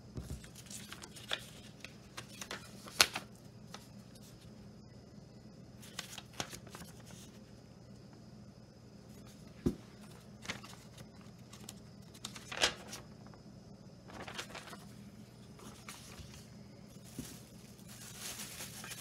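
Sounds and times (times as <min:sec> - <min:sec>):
paper rustling: 0:00.2 - 0:04.4, 0:05.8 - 0:07.4, 0:10.0 - 0:13.4, 0:14.1 - 0:19.0.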